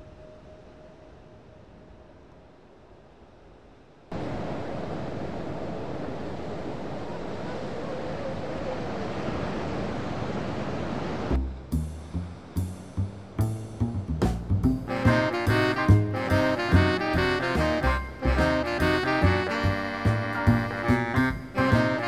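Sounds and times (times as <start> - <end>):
surf breaking on beach: 4.1 - 11.4.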